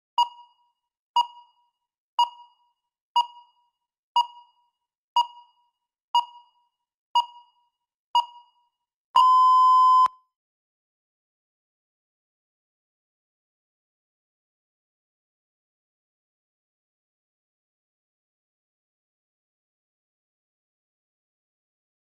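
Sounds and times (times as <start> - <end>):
timer beeps: 0.2 - 8.6, 9.2 - 10.2
long steady beep: 9.2 - 10.2.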